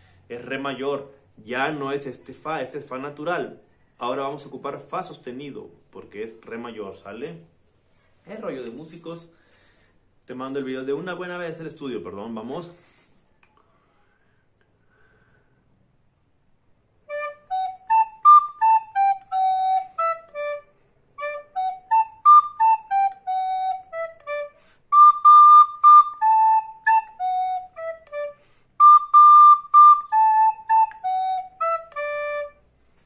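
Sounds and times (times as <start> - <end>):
recorder melody: 17.1 - 32.7.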